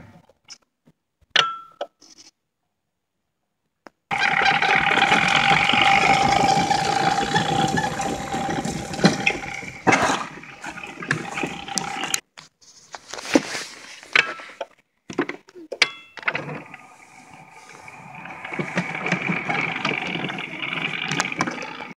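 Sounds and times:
electric motor whining: 4.1s - 12.2s, 16.5s - 21.9s
tyres rolling over grass: 4.1s - 12.2s, 16.4s - 21.9s.

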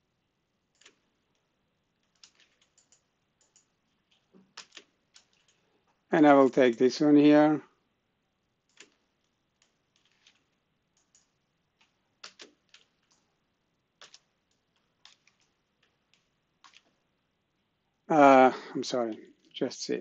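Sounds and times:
keyboard keystrokes: 11.0s - 13.3s.

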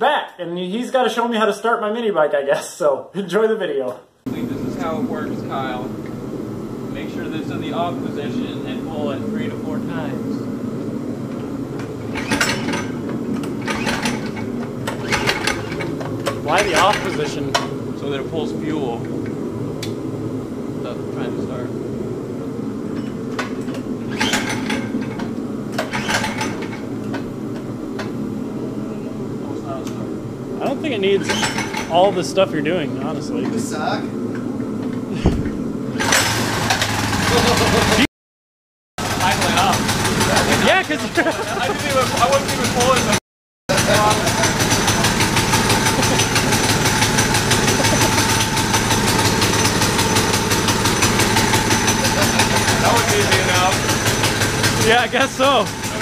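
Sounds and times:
recoil starter pulls: 11.3s - 17.8s, 23.0s - 28.2s, 31.2s - 32.2s, 35.9s - 38.0s, 39.0s - 56.0s
small engine cranking: 12.0s - 17.4s, 24.0s - 25.2s, 25.8s - 26.9s, 36.0s - 38.0s, 43.7s - 56.0s.

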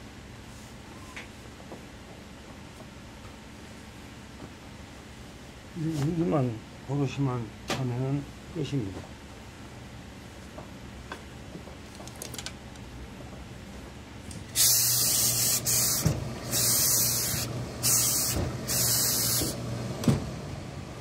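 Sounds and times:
steam iron hissing: 14.5s - 19.7s.

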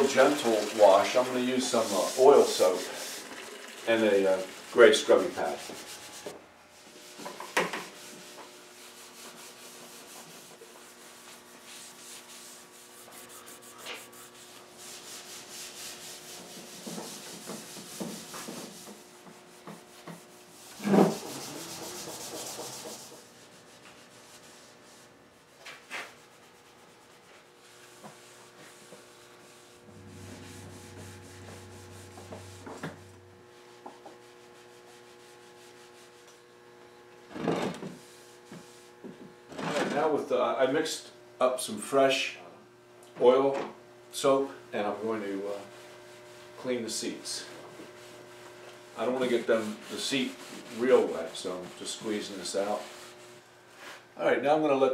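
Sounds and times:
scrubbing pad rubbing wood: 0.0s - 6.4s, 8.0s - 36.2s, 49.0s - 54.0s.

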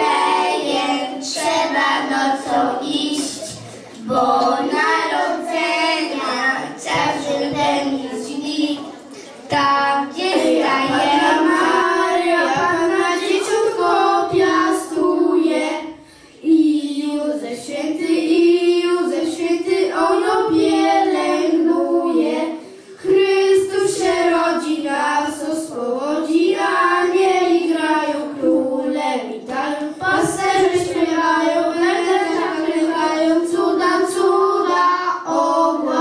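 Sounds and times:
children singing a carol: 0.0s - 36.0s.

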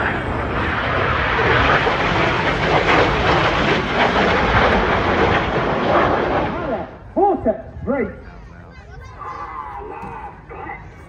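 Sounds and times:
jet flying past: 0.0s - 8.2s.

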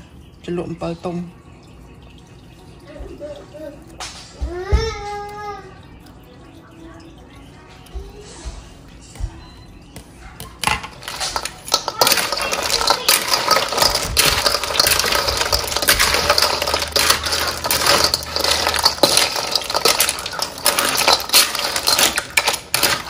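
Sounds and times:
small hard objects clattering: 10.6s - 23.0s.

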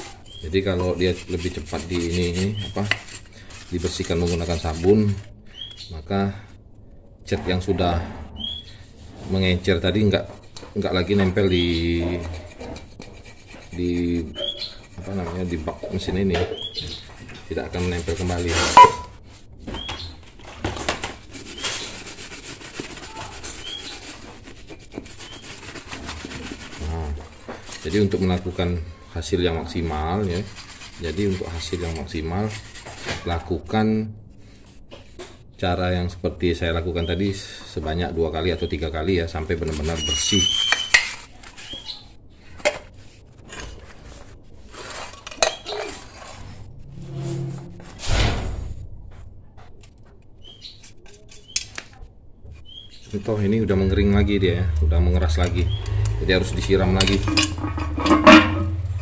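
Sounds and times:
brush scrubbing metal: 0.0s - 6.1s, 8.8s - 19.2s, 20.2s - 33.7s, 38.0s - 48.0s, 53.0s - 59.0s
metal covers clinking on concrete: 18.7s - 19.1s, 57.0s - 59.0s.

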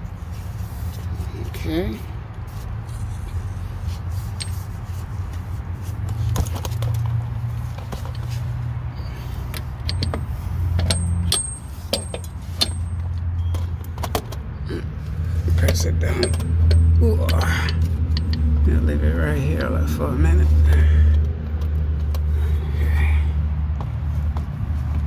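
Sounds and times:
low vehicle rumble: 0.0s - 25.0s
metal hardware clinking: 9.5s - 14.4s, 15.6s - 18.6s.

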